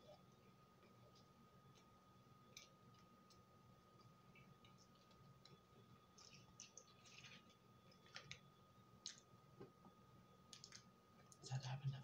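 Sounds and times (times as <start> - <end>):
person chewing: 4.0 - 8.4.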